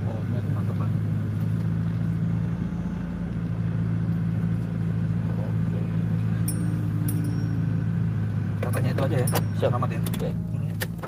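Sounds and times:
car engine and road noise: 0.0 - 11.0
light metallic jingles: 6.4 - 10.7.

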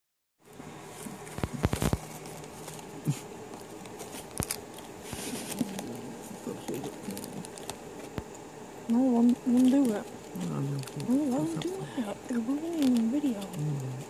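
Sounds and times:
rat rummaging in cardboard box: 9.0 - 14.0.

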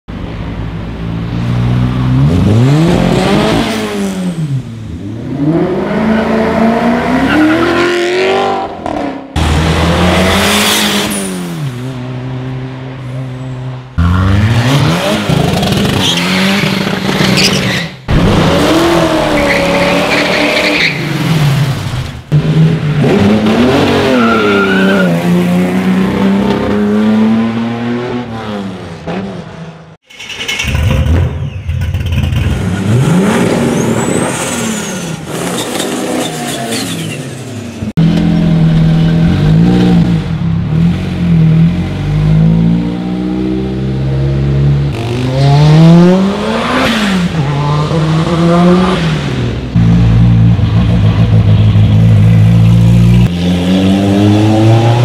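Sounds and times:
car engines revving: 0.1 - 55.0.

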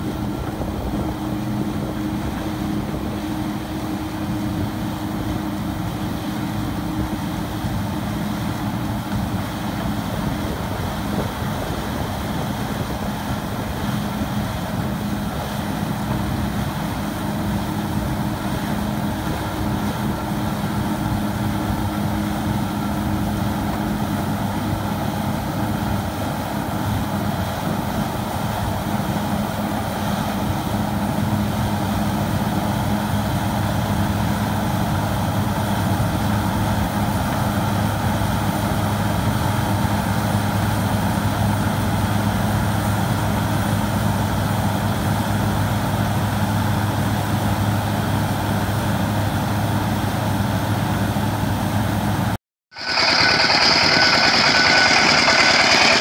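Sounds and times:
machine engine humming: 52.7 - 56.0.

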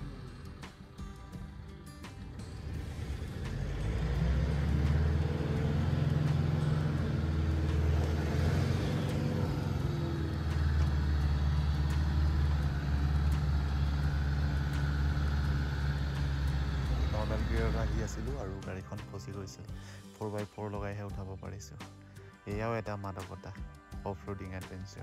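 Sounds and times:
car engine pulling under load: 0.0 - 19.3.

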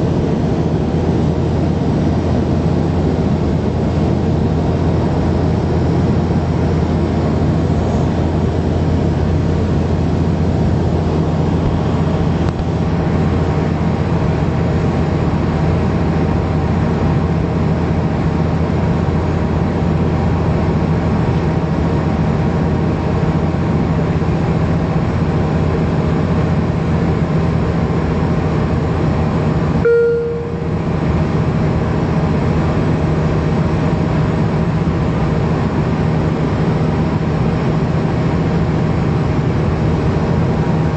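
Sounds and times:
propeller plane engine drone: 0.0 - 40.9
short cabin tone: 29.8 - 31.5.

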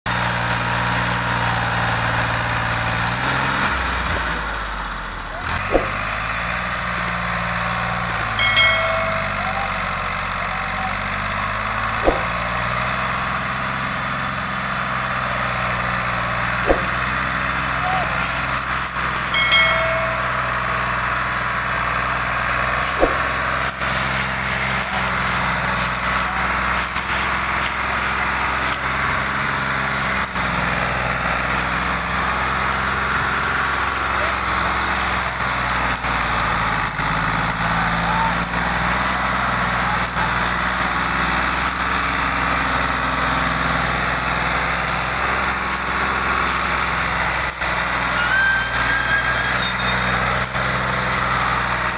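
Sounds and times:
tractor diesel engine under load: 0.1 - 51.9
short knocks: 12.0 - 12.5, 16.7 - 17.2, 23.0 - 23.7.

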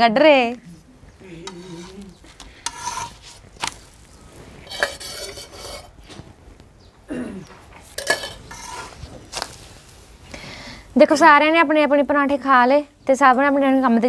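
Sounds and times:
metal utensils clinking and scraping: 1.4 - 3.8, 4.6 - 6.0, 7.8 - 9.5.

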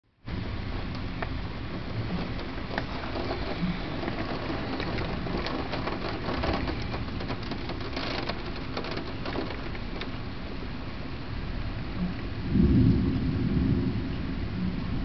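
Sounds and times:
steady rain falling: 0.3 - 15.0
raindrops ticking on a surface: 0.8 - 10.7.

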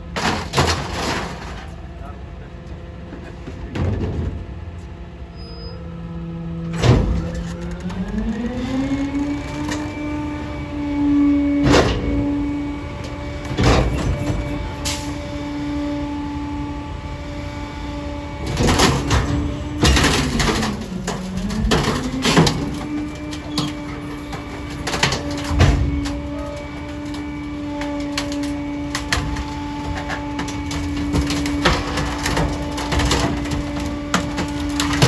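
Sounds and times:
items crushed with cracks and bangs: 0.0 - 2.0, 13.4 - 14.8, 18.4 - 35.0
garbage truck engine revving: 5.9 - 35.0.

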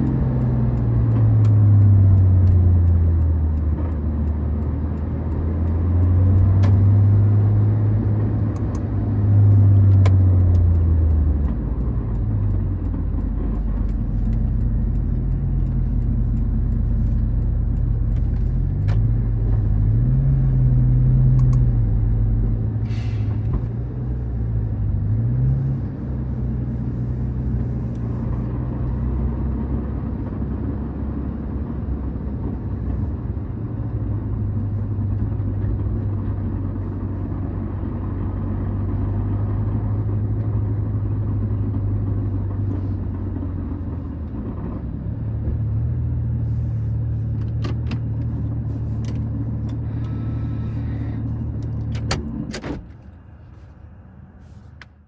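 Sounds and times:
car engine from inside cabin: 0.0 - 55.0
brief hiss: 22.8 - 23.5.

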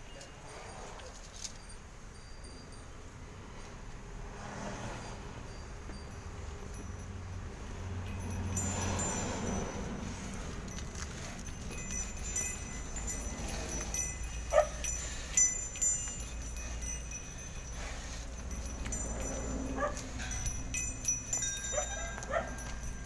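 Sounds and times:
bell jingling: 0.0 - 3.5, 4.9 - 23.0
low background rumble: 6.1 - 23.0.

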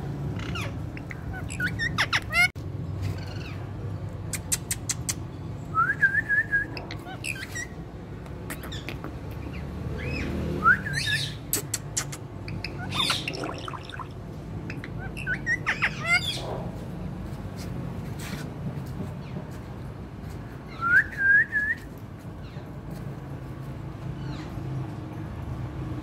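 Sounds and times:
parakeet squawking and chirping: 0.3 - 2.5, 6.8 - 7.8, 11.0 - 11.5, 12.1 - 16.5.

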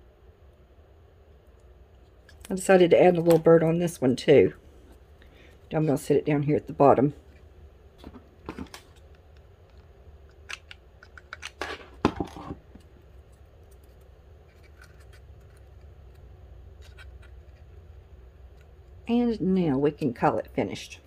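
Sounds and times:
faint low hum: 0.0 - 21.0.

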